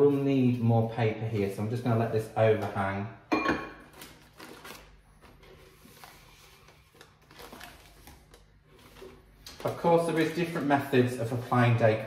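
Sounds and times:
paper rustling and scraping: 3.9 - 12.0.

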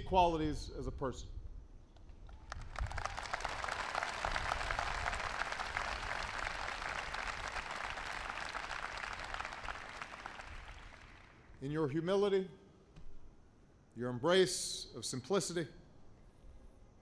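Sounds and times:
audience applauding: 2.4 - 11.4.

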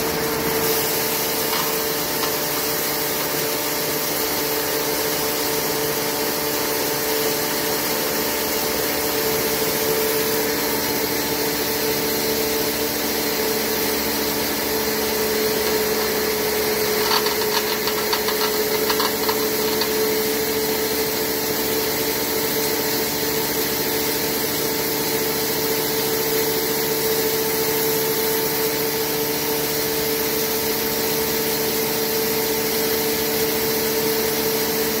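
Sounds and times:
hammer mill motor hum: 0.0 - 35.0
rattling clicks: 15.6 - 20.1.

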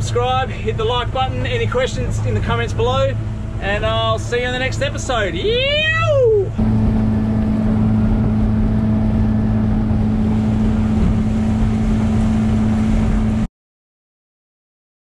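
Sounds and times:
motorboat engine hum: 0.0 - 13.5
rushing water: 0.0 - 13.5
wind on microphone: 6.3 - 13.5.

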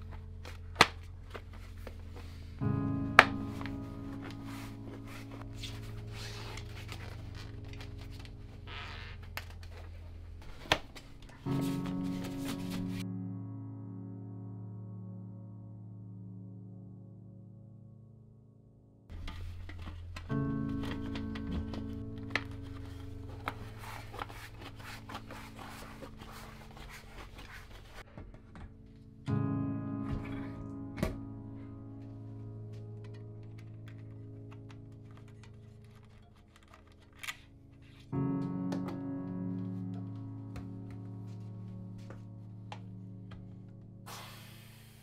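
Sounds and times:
tyre rubbing and scraping on rim: 22.4 - 28.0.

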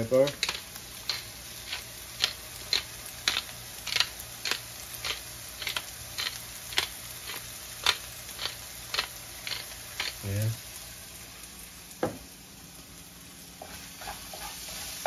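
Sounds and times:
pepper mill grinding: 0.0 - 10.5.

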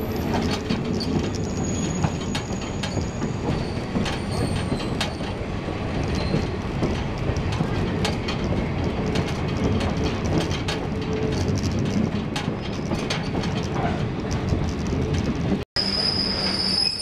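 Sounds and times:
train wheels rumbling on track: 0.0 - 17.0
high-pitched wheel squeal: 15.8 - 17.0.

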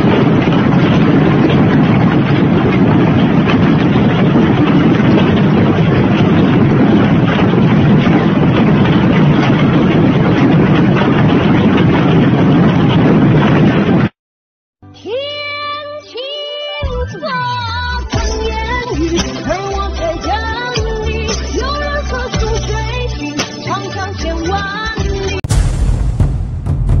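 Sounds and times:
strong wind: 0.0 - 14.1, 25.4 - 27.0.

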